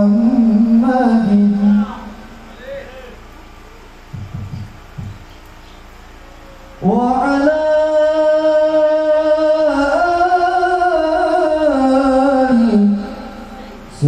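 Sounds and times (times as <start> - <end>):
man singing devotional chant: 0.0 - 2.9, 6.8 - 14.0.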